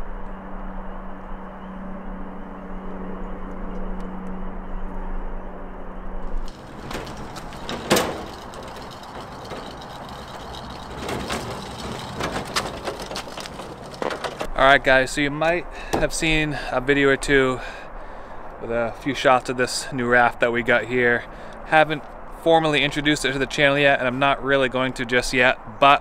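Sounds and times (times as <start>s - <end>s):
boat trailer rolling and clanking: 6.4s - 15.0s.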